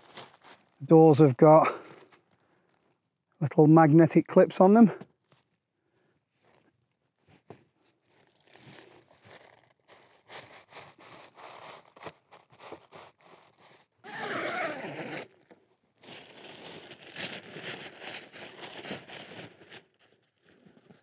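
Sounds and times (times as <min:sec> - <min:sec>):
tent fabric rustling and crackling: 0:00.0 - 0:01.0, 0:07.2 - 0:15.4, 0:16.0 - 0:21.0.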